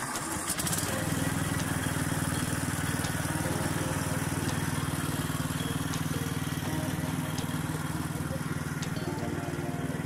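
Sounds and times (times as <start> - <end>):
riding lawn mower engine: 0.0 - 10.0.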